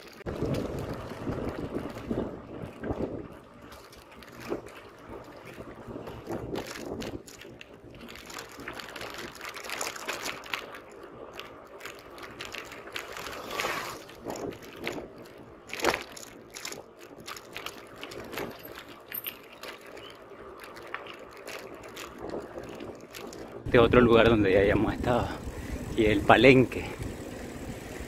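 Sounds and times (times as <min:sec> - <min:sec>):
bicycle rattling over paving stones: 0:00.0 - 0:28.0
wind buffeting microphone: 0:00.2 - 0:28.0.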